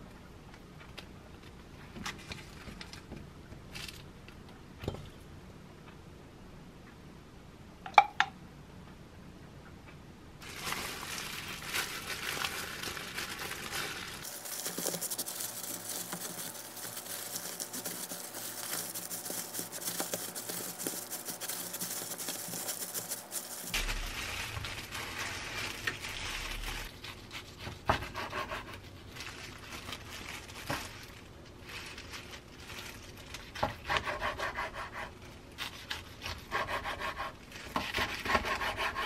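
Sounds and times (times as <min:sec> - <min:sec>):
plastic gloves crinkling: 0:10.4 - 0:27.9, 0:28.5 - 0:33.8.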